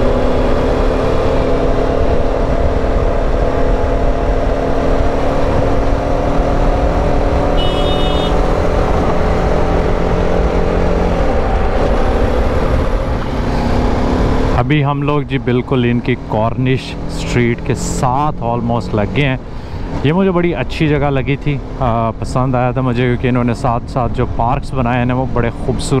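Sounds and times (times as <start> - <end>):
motorcycle engine running: 0.0 - 12.4
wind and road rumble: 0.0 - 26.0.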